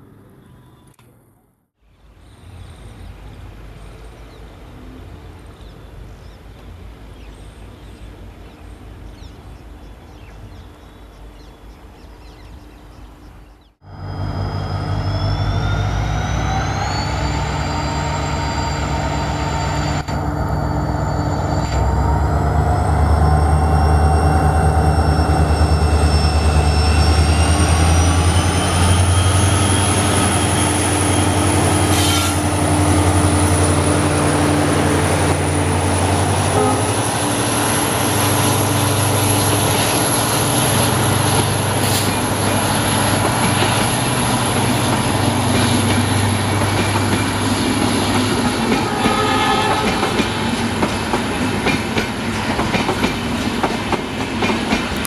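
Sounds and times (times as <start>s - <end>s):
turbocharger whine: 13.8s - 36.7s
diesel locomotive engine: 13.8s - 55.0s.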